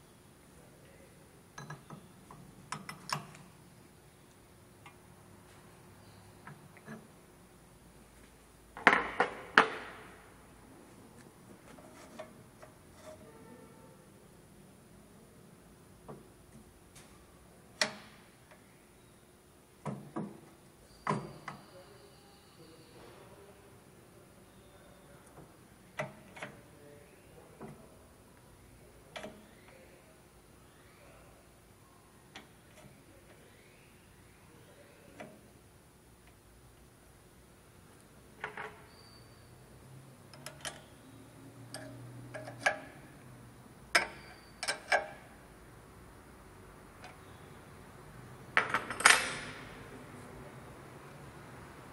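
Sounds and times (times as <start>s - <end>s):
faint metallic ring: 12.9s - 14.0s
metal clicks and knocks: 40.3s - 40.9s, 41.7s - 43.0s, 43.9s - 45.2s.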